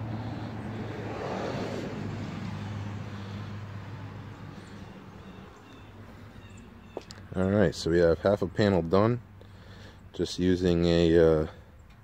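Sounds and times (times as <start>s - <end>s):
car passing by: 0.0s - 6.5s.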